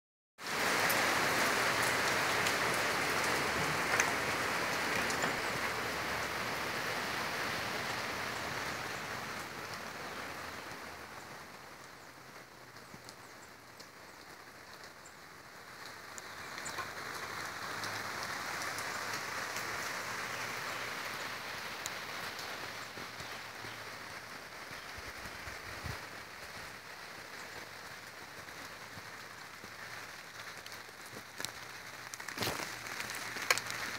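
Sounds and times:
steady rain falling: 0.4 - 33.9
faint water drips: 26.5 - 33.9.

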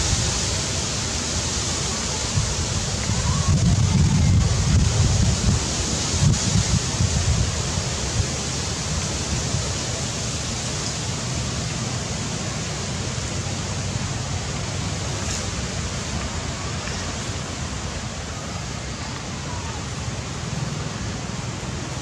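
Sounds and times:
outdoor hiss: 0.0 - 22.0
wind buffeting microphone: 1.7 - 9.8.

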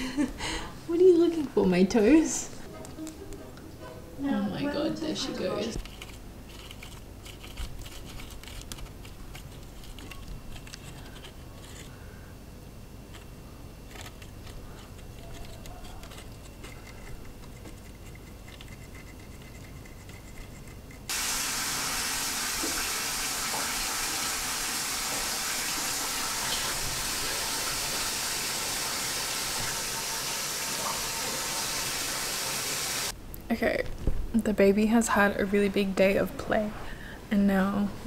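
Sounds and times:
loud steady hiss: 21.1 - 33.2.

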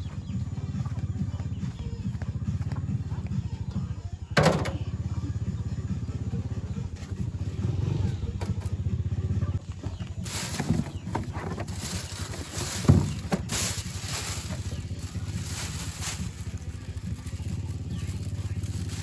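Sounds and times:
small engine idling: 0.0 - 19.0
plastic bags of ice rustling: 10.2 - 19.0.

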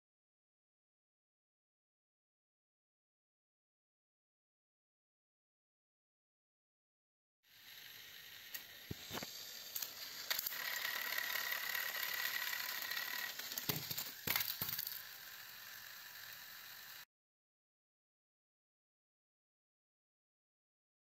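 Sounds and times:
toy train motors whining: 7.5 - 17.1.

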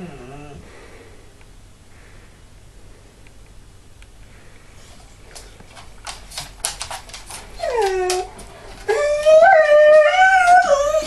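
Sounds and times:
dog whining: 0.0 - 0.6, 7.3 - 11.0
dog howling: 7.6 - 11.0.

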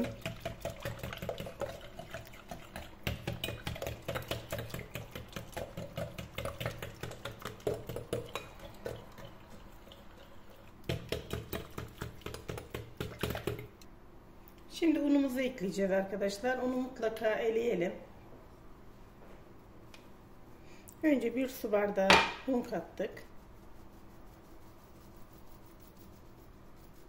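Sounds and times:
whisk clicking against glass bowl: 2.6 - 9.3.

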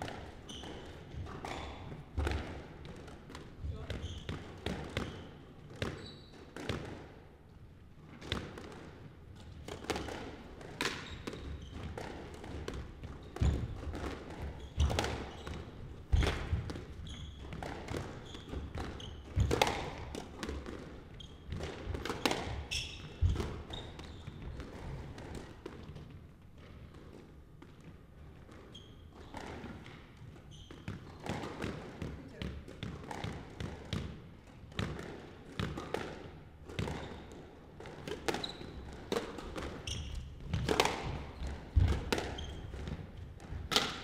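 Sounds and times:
shoe squeaks: 0.4 - 1.9, 3.7 - 4.4, 5.0 - 6.5, 10.9 - 11.9, 13.2 - 13.8, 14.6 - 16.4, 17.0 - 17.6, 18.2 - 19.5, 21.1 - 21.5, 22.6 - 24.6, 28.7 - 29.3, 30.4 - 31.2, 36.9 - 37.3, 38.3 - 38.9, 39.8 - 40.4, 42.2 - 42.7
racquet striking ball: 9.5 - 26.0, 30.8 - 44.0
ball smacking court walls: 17.5 - 26.9, 30.7 - 44.0.

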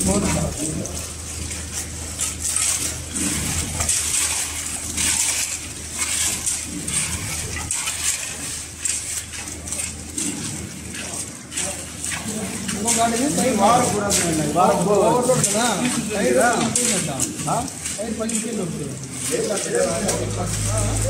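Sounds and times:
trowel scraping wet concrete: 9.8 - 21.0.

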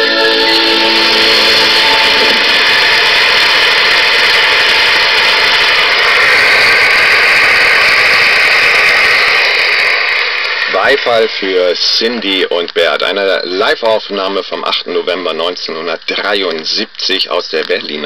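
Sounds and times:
live music: 0.0 - 5.2
audience applauding: 0.0 - 11.7.

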